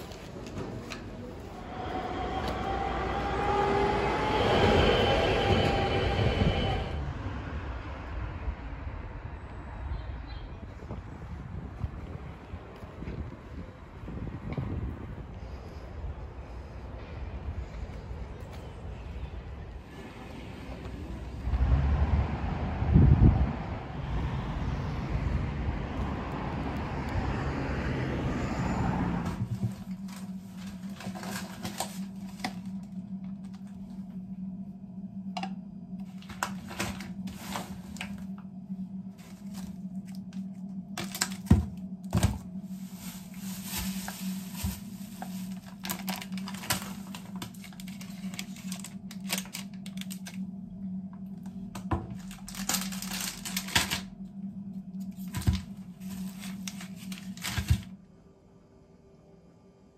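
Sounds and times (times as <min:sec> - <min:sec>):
low hum: 0:00.0 - 0:10.0, 0:10.7 - 0:59.9
packaging rustling: 0:29.5 - 0:33.7, 0:39.1 - 0:50.4, 0:52.1 - 0:54.1, 0:55.1 - 0:57.9.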